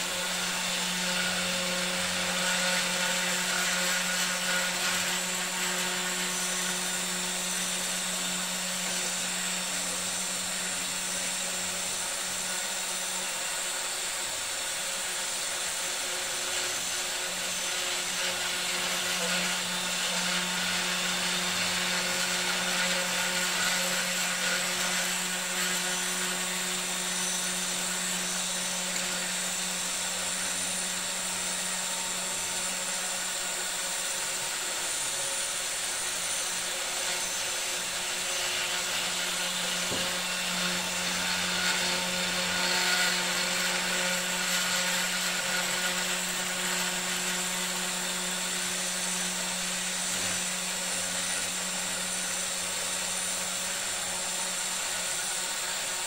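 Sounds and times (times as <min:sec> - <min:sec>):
hiss of milling cut: 0:00.0 - 0:56.0
router spindle humming: 0:00.0 - 0:56.0.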